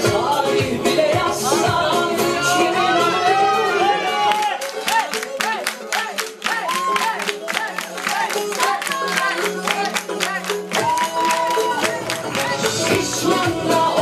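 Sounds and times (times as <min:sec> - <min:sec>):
pop song with singing: 0:00.0 - 0:14.0.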